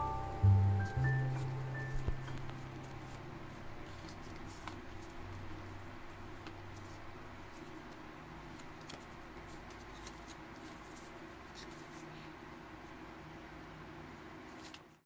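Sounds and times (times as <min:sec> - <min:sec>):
steady low hum: 0:00.0 - 0:09.7
cards clicking and rustling: 0:03.8 - 0:05.2, 0:06.4 - 0:12.1.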